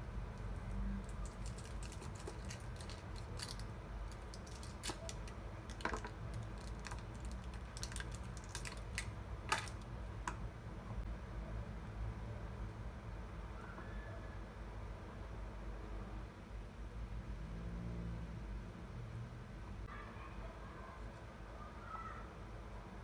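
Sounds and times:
foil crinkling: 1.1s - 9.8s.

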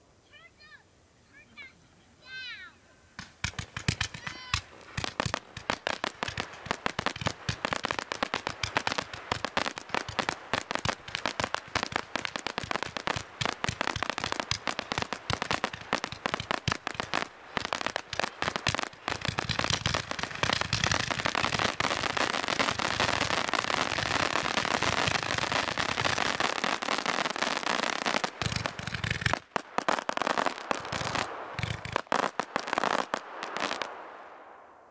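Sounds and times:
firework bangs and crackling: 3.2s - 34.8s.

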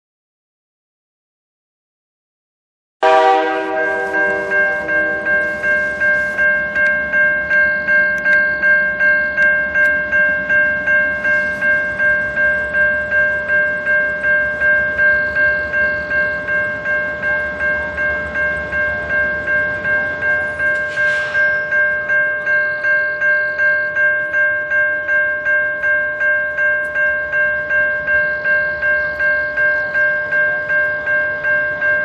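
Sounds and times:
freight train rumbling: 3.0s - 23.2s
level crossing bell ringing: 3.0s - 32.0s.

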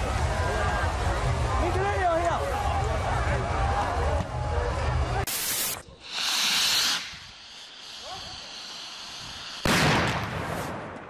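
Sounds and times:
firework hissing: 5.2s - 10.9s
sparks fizzing and crackling: 5.2s - 10.9s
firework bang: 9.1s - 11.0s.

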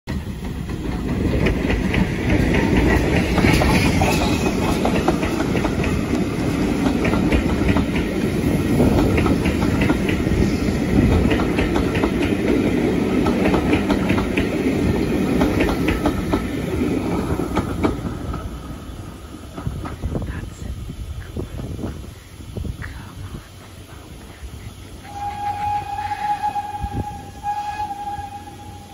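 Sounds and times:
wheels clacking over rail joints: 0.1s - 18.6s
train wheels rumbling: 0.1s - 28.9s.

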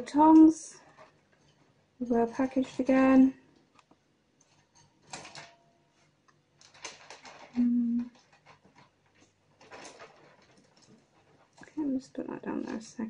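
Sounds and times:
paper packaging rustling: 4.5s - 13.0s
person humming: 7.6s - 8.1s.

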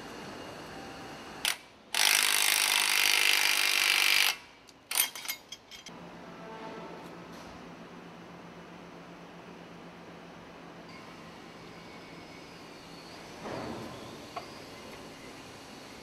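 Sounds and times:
power tool driving bolts: 1.4s - 5.3s.

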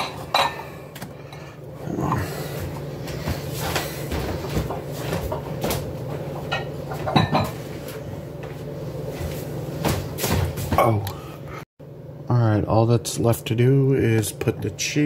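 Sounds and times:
cookware and utensils clattering: 0.0s - 1.4s, 6.4s - 7.6s
steady low hum: 0.0s - 15.0s.

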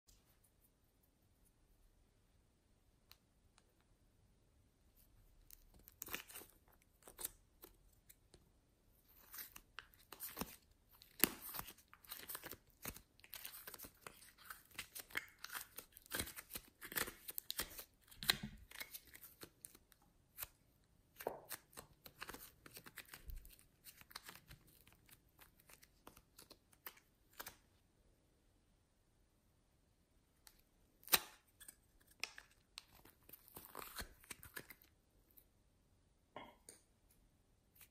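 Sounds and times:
clay peeling tearing: 5.4s - 8.2s, 9.1s - 20.6s, 30.5s - 34.9s.

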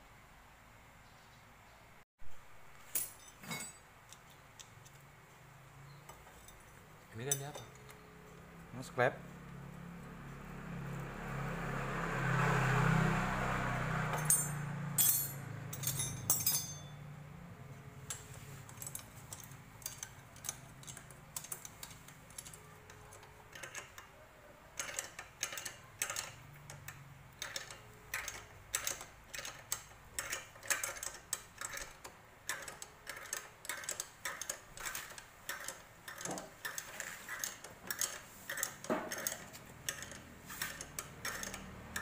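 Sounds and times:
wrench clinking on metal: 2.8s - 5.0s, 6.1s - 8.4s, 14.1s - 17.2s, 18.0s - 24.1s, 24.8s - 42.0s.

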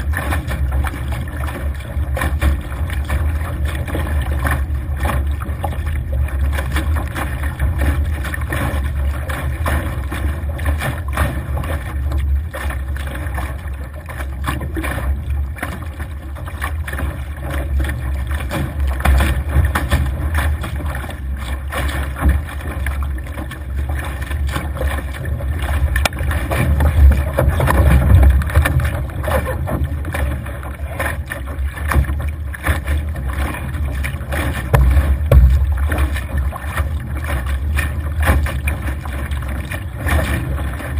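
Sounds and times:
rush of water: 0.0s - 40.9s
spray slapping at the bow: 34.0s - 40.4s.

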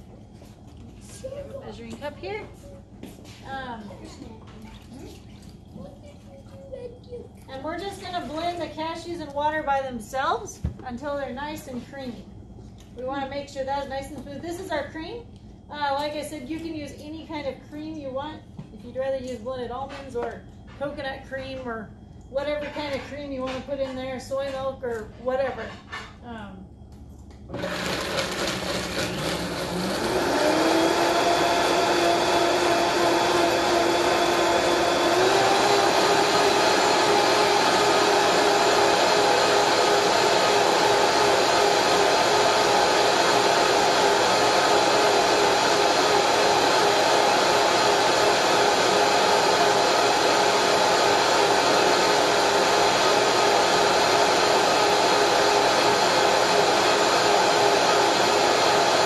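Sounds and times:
blender motor running: 27.5s - 59.0s.

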